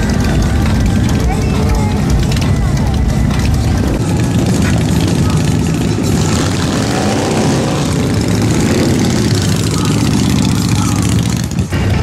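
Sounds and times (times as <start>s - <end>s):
motorcycles riding slowly past: 0.0s - 12.0s.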